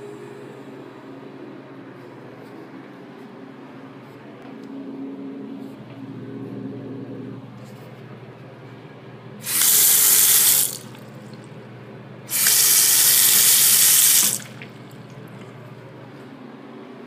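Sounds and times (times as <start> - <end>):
faucet water running into sink: 9.4 - 11.0, 12.3 - 15.5.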